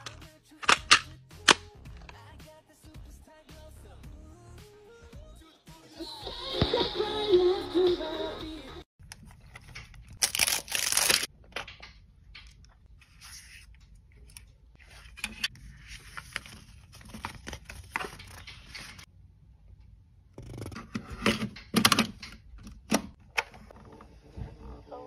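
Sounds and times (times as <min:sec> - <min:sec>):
paper rustling: 0:09.1 - 0:11.3, 0:13.0 - 0:19.1
plastic shrink-wrap tearing: 0:10.2 - 0:11.3.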